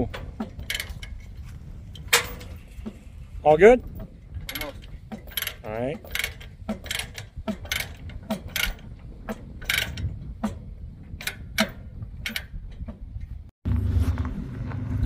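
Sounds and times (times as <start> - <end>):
ratchet pawl clicking: 3.8 - 10.6.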